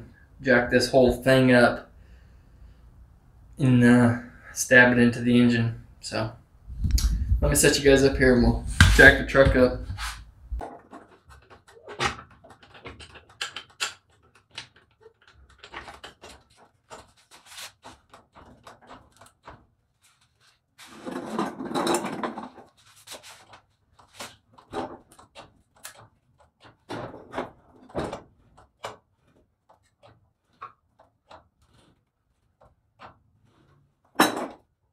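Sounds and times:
floor jack clicking and clanking: 0:10.6 - 0:19.7, 0:20.9 - 0:29.1.

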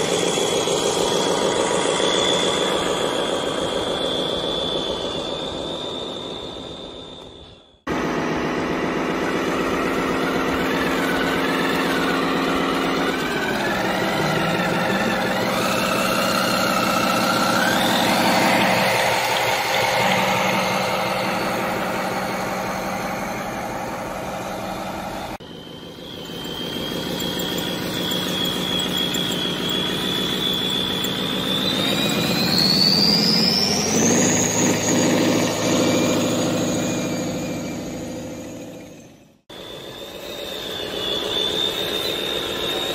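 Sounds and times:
engine-like drone: 0:00.0 - 0:42.9
toy excavator motors whining: 0:08.6 - 0:42.9.

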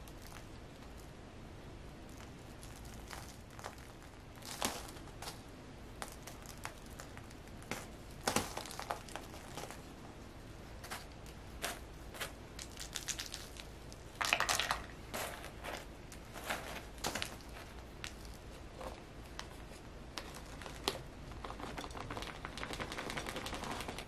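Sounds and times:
pebbles clicking: 0:00.0 - 0:01.1, 0:02.0 - 0:05.4, 0:10.8 - 0:19.5, 0:20.1 - 0:24.0
soil rustling and crumbling: 0:00.0 - 0:01.1, 0:02.0 - 0:10.0, 0:10.7 - 0:24.0
stones rattling into a pot: 0:14.2 - 0:18.3.

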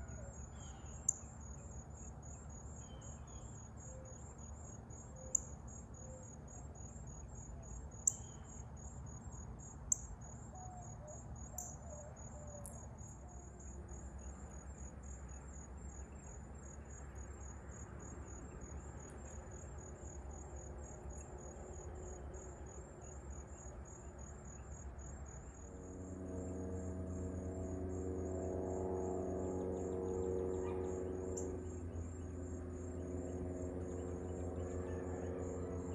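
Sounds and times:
insects trilling: 0:00.0 - 0:35.9
low drone of steady tones: 0:24.2 - 0:35.9.

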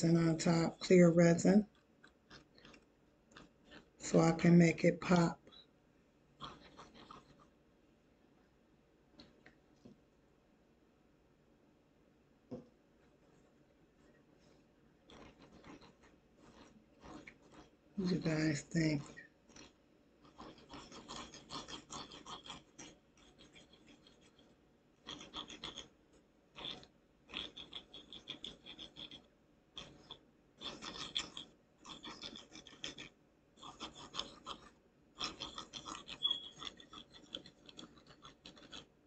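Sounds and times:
toothpick scratching wet paint: 0:00.1 - 0:05.6, 0:06.4 - 0:07.5, 0:15.1 - 0:39.0.

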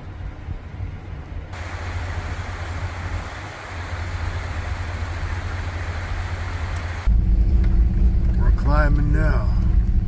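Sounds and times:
low steady hum: 0:00.0 - 0:10.0
creek rushing over rocks: 0:01.6 - 0:07.1.

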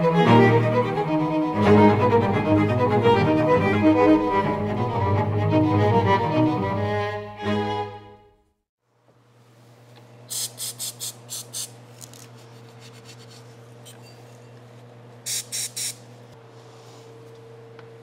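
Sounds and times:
aerosol spray can squirts: 0:10.3 - 0:11.7, 0:15.3 - 0:16.0.

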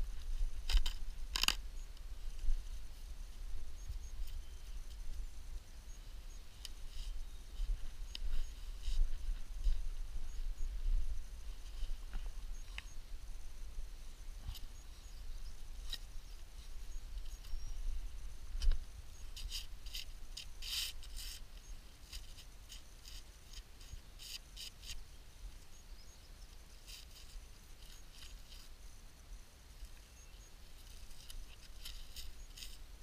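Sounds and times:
dry scratching and crackling: 0:00.0 - 0:05.3, 0:18.6 - 0:25.1, 0:26.5 - 0:29.0, 0:29.8 - 0:33.0.

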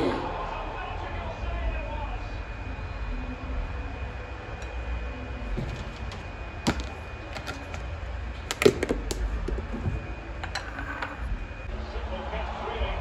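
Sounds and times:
objects clicking and knocking: 0:05.5 - 0:11.3.

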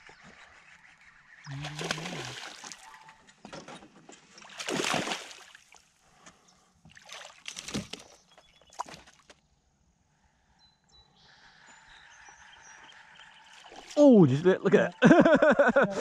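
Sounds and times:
fish thrashing and splashing: 0:01.5 - 0:02.9, 0:04.4 - 0:05.7, 0:06.9 - 0:08.2.

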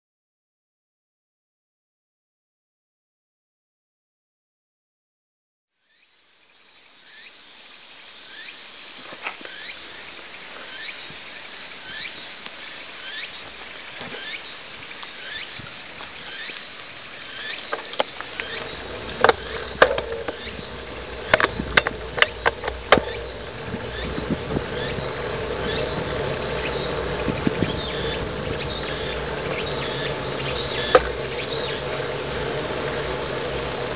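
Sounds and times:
wind and tyre noise: 0:07.6 - 0:33.9
bike knocks and rattles: 0:17.6 - 0:33.3
low rumble: 0:18.3 - 0:33.9.

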